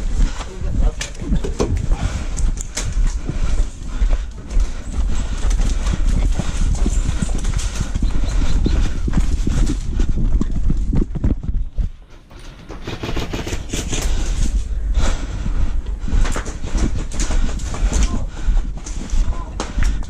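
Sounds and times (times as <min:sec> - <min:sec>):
low microphone rumble: 0:00.0 - 0:12.4, 0:13.6 - 0:20.0
footsteps on gravel: 0:00.0 - 0:12.6.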